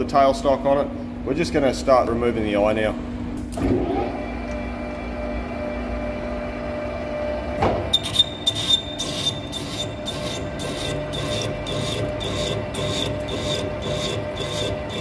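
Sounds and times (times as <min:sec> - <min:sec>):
lathe machine hum: 0:03.6 - 0:15.0
cutting tool squealing on steel: 0:07.9 - 0:15.0.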